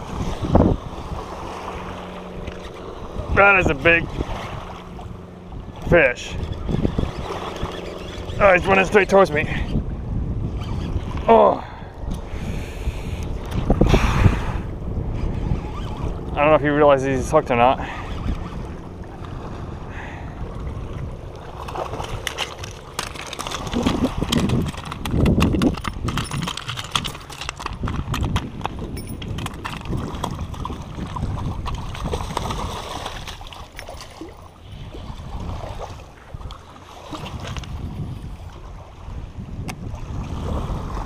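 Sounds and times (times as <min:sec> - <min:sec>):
fish splashing in shallow water: 0:18.0 - 0:39.3.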